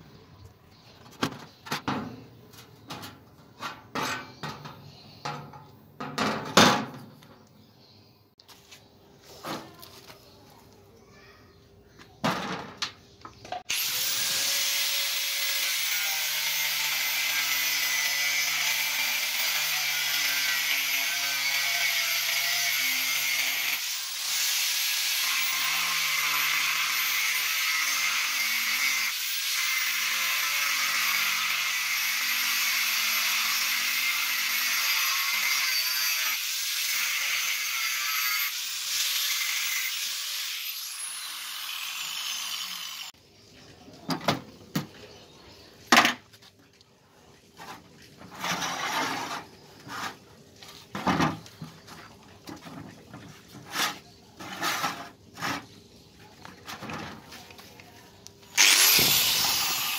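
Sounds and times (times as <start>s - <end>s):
angle grinder cutting metal: 13.7s - 43.2s, 58.5s - 59.9s.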